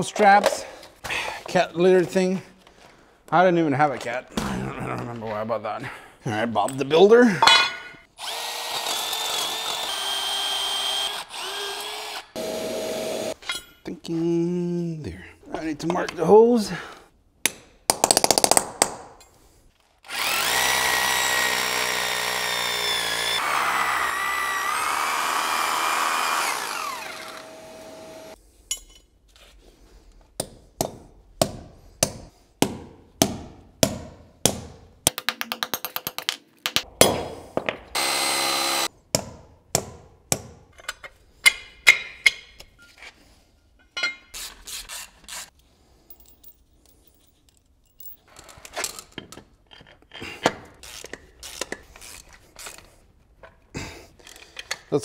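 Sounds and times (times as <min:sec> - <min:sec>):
electric drill boring into concrete: 0:08.2 - 0:13.4, 0:20.0 - 0:28.4, 0:38.0 - 0:38.9.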